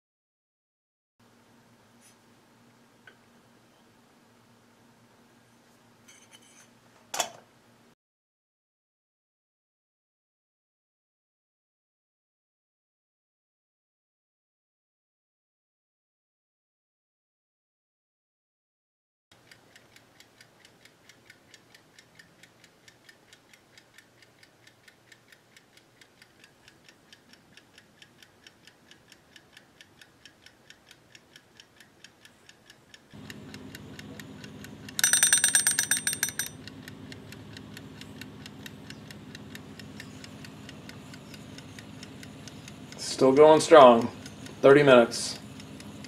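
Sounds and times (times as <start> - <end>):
kitchen timer ticking: 19.3 - 46.0
timer bell ringing: 35.0 - 36.6.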